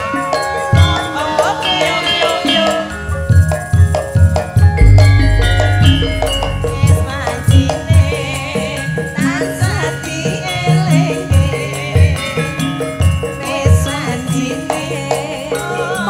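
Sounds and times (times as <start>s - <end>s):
hand drum strokes: 4.8s - 7.8s
metallophone tones: 4.8s - 7.8s
woman singing: 13.4s - 16.0s.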